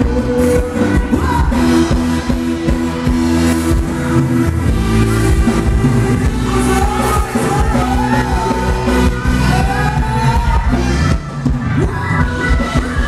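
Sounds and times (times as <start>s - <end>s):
person singing: 0.0s - 2.8s, 5.3s - 13.0s
live band playing dance music: 0.0s - 13.0s.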